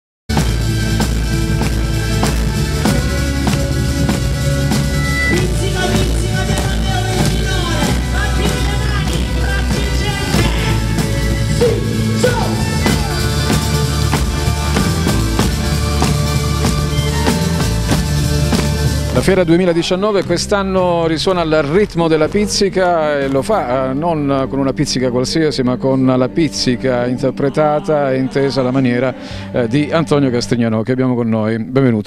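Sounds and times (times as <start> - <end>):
frame drum beating fast rhythm: 0.3 - 22.1
live folk band playing: 0.3 - 30.6.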